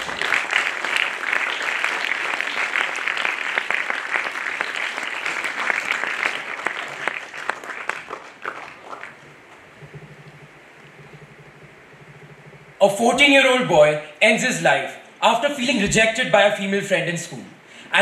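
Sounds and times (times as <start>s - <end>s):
audience applause: 0.0s - 10.3s.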